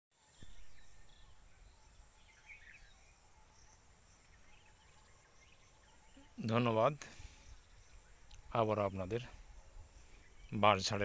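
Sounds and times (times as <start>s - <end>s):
faint bird chirps: 0.2s - 11.0s
high insect hiss: 0.2s - 11.0s.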